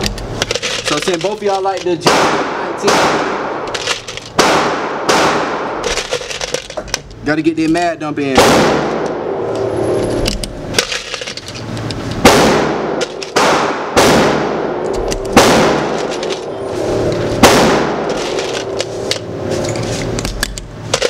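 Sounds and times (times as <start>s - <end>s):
echoing gunshots: 2.0s - 3.7s, 4.3s - 5.9s, 8.2s - 9.5s, 12.2s - 16.6s, 17.3s - 19.4s.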